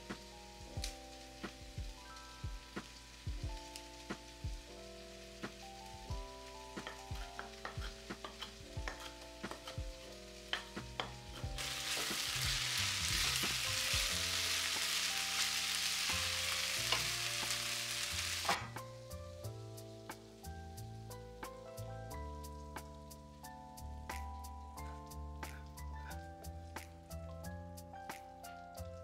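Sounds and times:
meat sizzling in a frying pan: 0.0s - 24.2s
soft background music: 0.0s - 29.0s
wooden spatula stirring: 6.8s - 15.0s.

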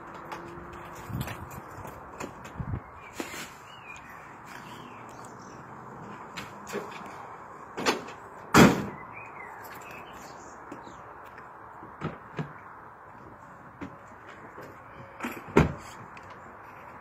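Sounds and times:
bag thudding into metal truck bed: 7.8s - 9.0s.

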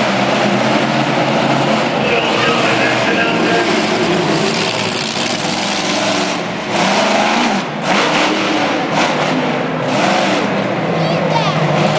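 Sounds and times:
truck engine revving hard: 0.0s - 11.9s.

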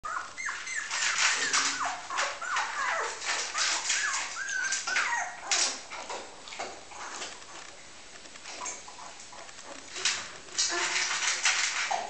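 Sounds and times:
puppies whimpering and squeaking: 0.0s - 6.1s
puppies rustling: 0.0s - 12.0s.

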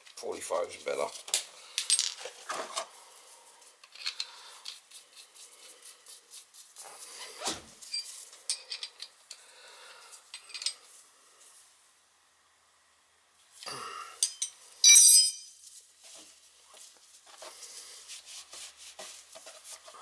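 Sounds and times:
metal tools clinking: 7.9s - 9.4s, 10.3s - 10.8s, 14.2s - 15.9s.

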